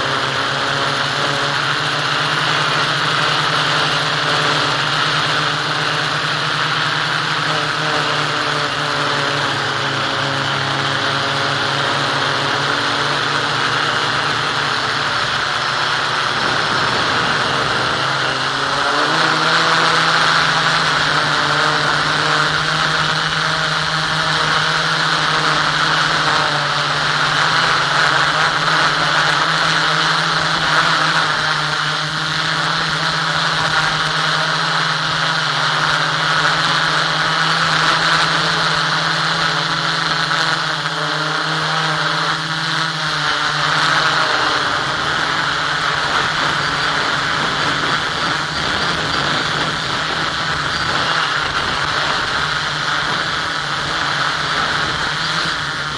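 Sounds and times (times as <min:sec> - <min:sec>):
model aircraft motor hum: 0:00.0 - 0:55.9
rushing airflow: 0:11.5 - 0:21.4.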